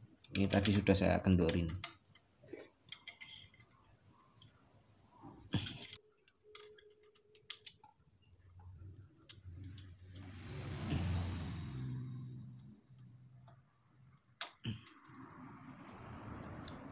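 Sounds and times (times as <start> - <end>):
faint hiss: 9.4 - 13.4.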